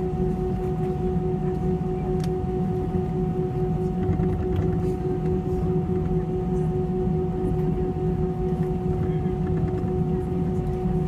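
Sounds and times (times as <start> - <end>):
constant engine whine: 0.0 - 11.0
jet engines humming: 0.0 - 11.0.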